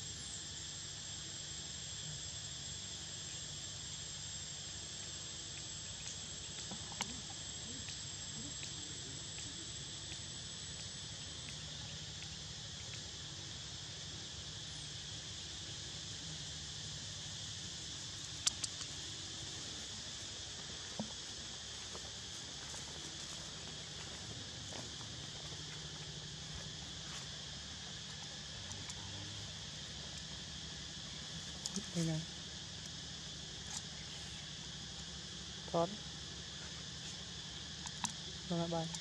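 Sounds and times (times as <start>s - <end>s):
insects high even tone: 0.0s - 39.0s
low insect buzz: 0.0s - 39.0s
sharp clicks: 18.4s - 18.9s.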